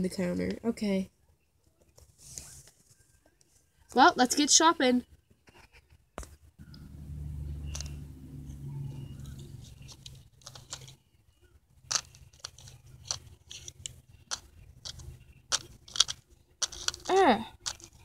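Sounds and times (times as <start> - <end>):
plastic toys clicking: 7.7 - 8.0, 9.2 - 11.0, 11.8 - 18.0.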